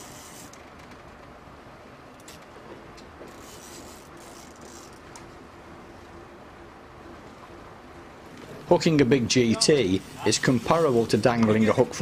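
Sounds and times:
fishing reel ticks: 0.0s - 0.6s, 3.3s - 5.1s
fishing reel whirring: 0.0s - 0.6s, 3.3s - 5.2s, 9.8s - 11.2s.

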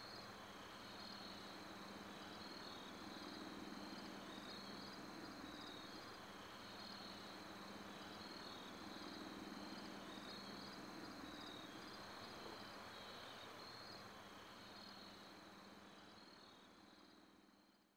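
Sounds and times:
faint chirping insects: 0.0s - 17.9s.

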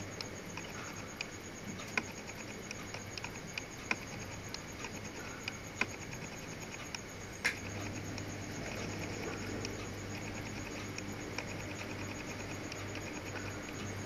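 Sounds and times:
background hiss and hum: 0.0s - 14.0s
small irregular clicks: 0.0s - 14.0s.

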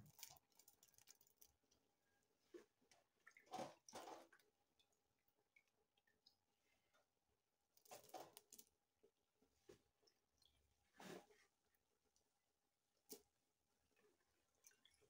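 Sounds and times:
faint soft noises: 0.0s - 15.0s.

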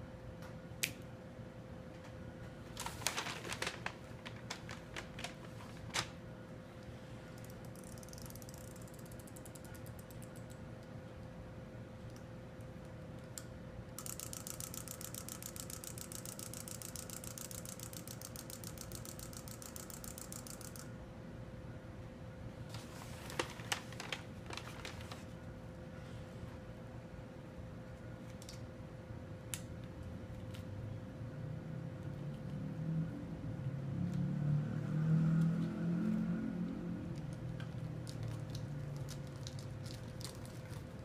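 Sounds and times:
ratchet clicks of toy winding: 7.4s - 10.1s, 14.0s - 20.9s.

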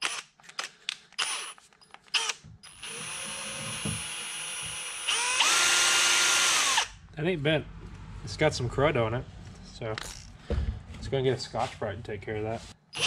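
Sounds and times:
power drill spinning: 0.0s - 7.0s.

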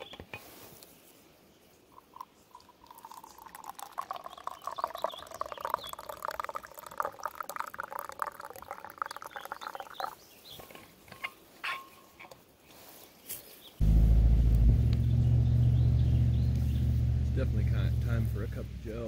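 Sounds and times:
coffee pouring into metal cup: 1.9s - 10.2s.

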